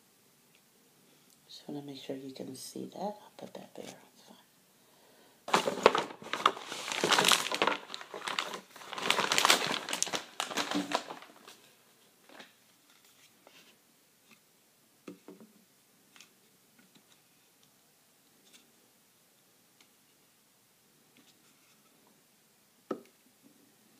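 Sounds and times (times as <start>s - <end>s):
plastic packaging crinkling: 5.5s - 13.3s.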